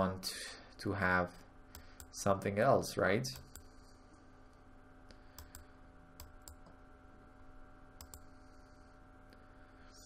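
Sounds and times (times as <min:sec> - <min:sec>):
low steady hum: 0:00.0 - 0:10.0
computer mouse clicks: 0:05.1 - 0:06.8, 0:08.0 - 0:08.3.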